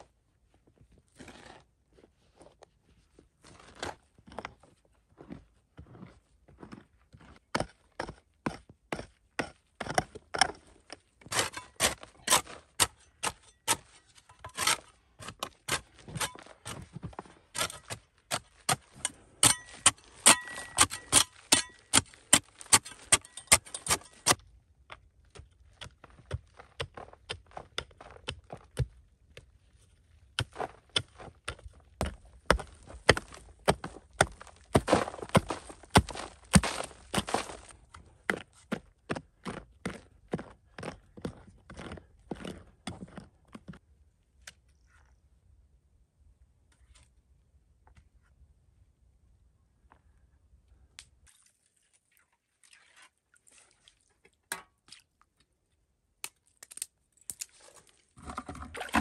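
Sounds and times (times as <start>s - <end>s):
sharp hand-tool strikes: 18.7s - 24.4s.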